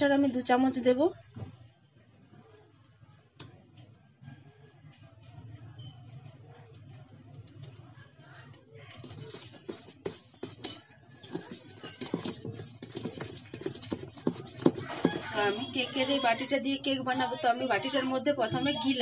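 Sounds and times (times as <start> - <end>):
spoon stirring in steel bowl: 5.8 - 19.0.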